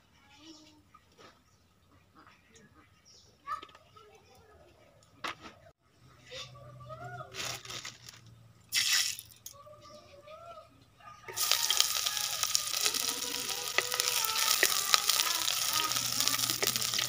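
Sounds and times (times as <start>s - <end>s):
food sizzling in hot oil: 11.3s - 17.0s
wooden spatula scraping: 11.4s - 17.0s.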